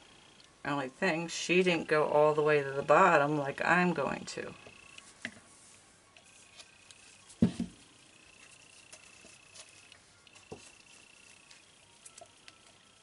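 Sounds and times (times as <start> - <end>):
faint high whine: 0.0 - 13.0
container knocking on tabletop: 7.4 - 7.8.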